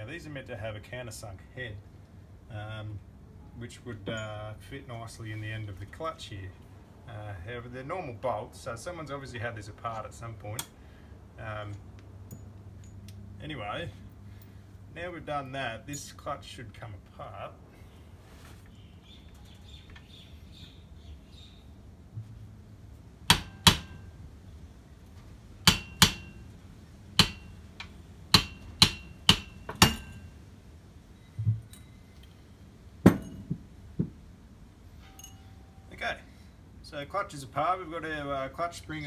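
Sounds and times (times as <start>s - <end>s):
hammer tapping metal: 23.3s - 24.2s, 25.6s - 26.5s, 27.2s - 30.3s, 33.1s - 34.2s.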